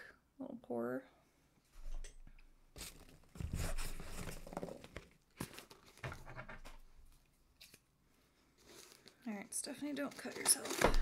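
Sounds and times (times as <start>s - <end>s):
packaging rustling and crinkling: 2.8s - 7.8s, 8.4s - 11.0s.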